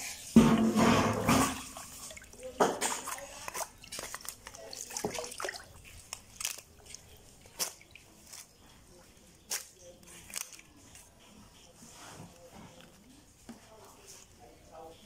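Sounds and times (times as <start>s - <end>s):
water splashing and dripping: 0.0s - 8.5s.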